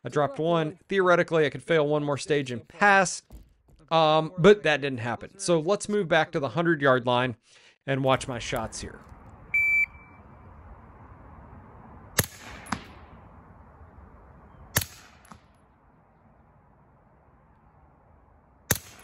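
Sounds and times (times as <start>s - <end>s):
shot timer beep: 9.5s - 10.2s
suppressed gunshots: 12.2s - 13.2s, 14.7s - 15.5s, 18.7s - 19.0s.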